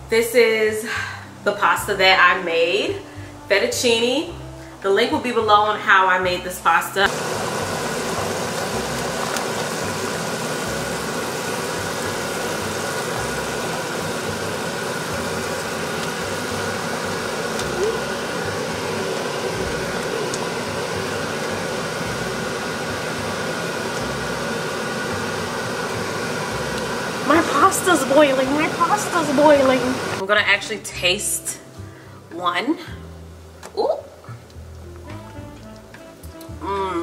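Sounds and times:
water boiling and bubbling: 7.1s - 30.2s.

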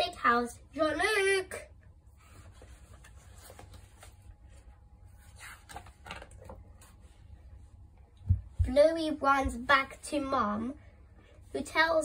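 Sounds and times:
low steady hum: 0.0s - 12.0s
paper pages rustling and turning: 2.1s - 7.2s.

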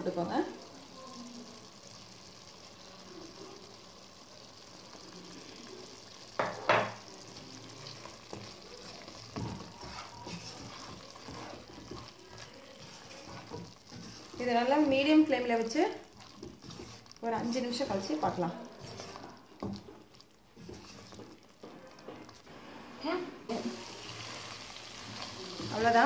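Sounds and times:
gravy sizzling in a pot: 0.0s - 26.0s
wooden spatula scraping a pot: 7.2s - 26.0s.

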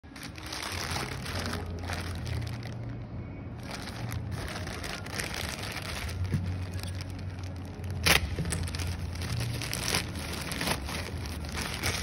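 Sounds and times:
plastic bag crinkling: 0.0s - 3.0s, 3.6s - 12.0s
steady low hum: 0.0s - 12.0s.

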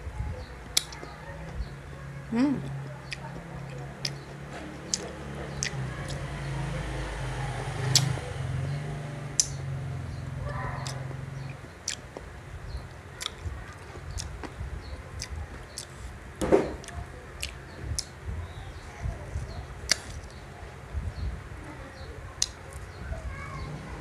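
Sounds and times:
person chewing with wet smacks: 2.6s - 6.2s, 10.7s - 12.3s, 13.2s - 16.1s, 16.8s - 18.6s, 19.9s - 20.4s.

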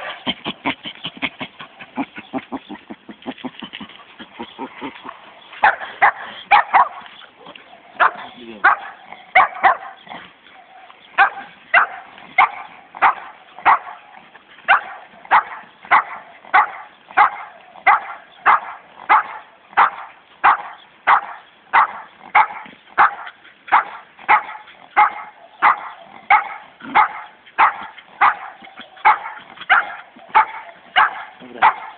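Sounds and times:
dog barking: 0.0s - 0.3s, 5.6s - 7.1s, 7.9s - 10.0s, 10.6s - 14.0s, 14.7s - 31.9s.

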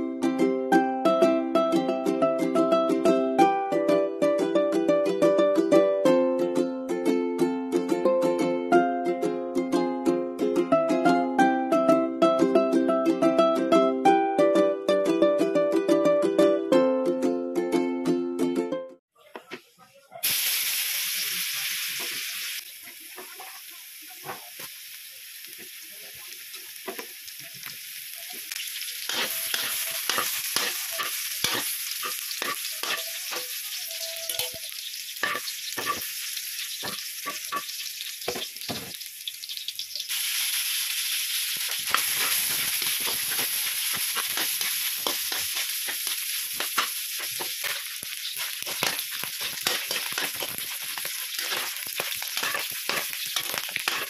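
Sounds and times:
food sizzling in oil: 20.1s - 54.0s
spatula scraping a pan: 29.0s - 33.6s, 35.2s - 36.0s, 41.9s - 54.0s.

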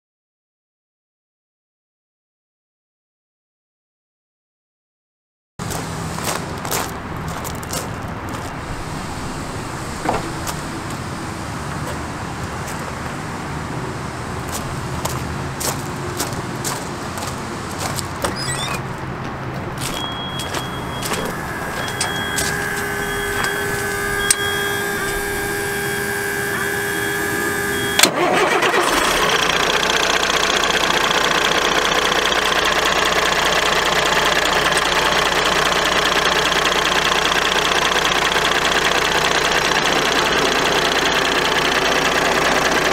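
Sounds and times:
diesel engine idling: 5.6s - 42.9s
high beeping: 18.3s - 18.9s, 19.8s - 28.0s
starter whine: 19.8s - 42.9s.

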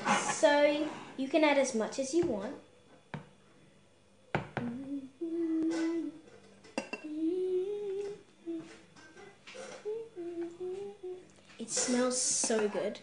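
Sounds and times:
girl humming: 4.6s - 6.2s, 7.0s - 8.8s, 9.6s - 12.0s
spoon tapping ceramic dish: 6.7s - 7.1s.

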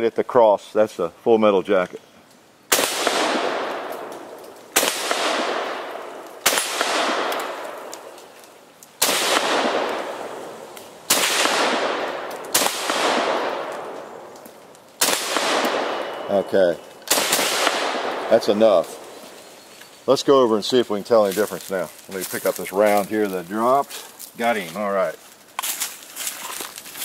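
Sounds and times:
rifle shots with long echo: 2.7s - 8.2s, 9.0s - 14.4s, 15.0s - 19.1s.

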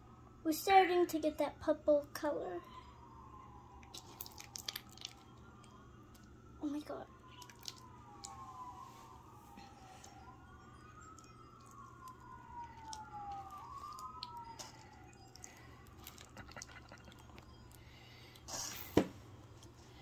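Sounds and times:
faint siren wailing: 0.0s - 20.0s.

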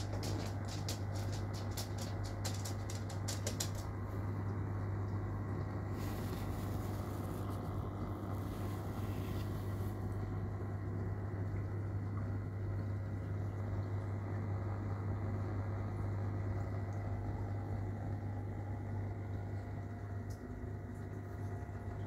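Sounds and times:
rapid light clicks: 0.0s - 4.0s
aquarium air pump humming: 0.0s - 22.0s.

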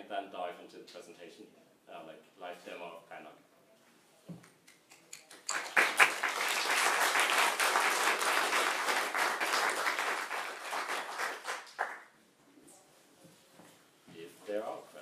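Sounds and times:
audience applause: 5.3s - 12.1s.

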